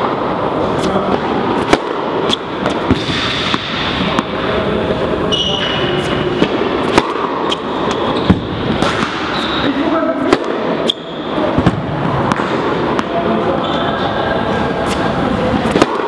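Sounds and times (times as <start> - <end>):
echoing hall noise: 0.0 - 16.0
tennis ball bouncing: 1.6 - 4.4, 6.0 - 9.6, 10.2 - 13.2, 15.6 - 16.0
tennis ball struck on serve: 6.5 - 7.6.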